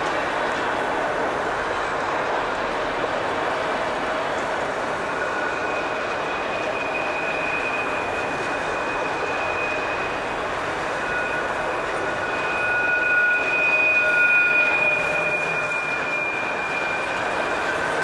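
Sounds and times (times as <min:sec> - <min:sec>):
freight train cars rumbling: 0:00.0 - 0:18.0
high-pitched wheel squeal: 0:04.9 - 0:18.0.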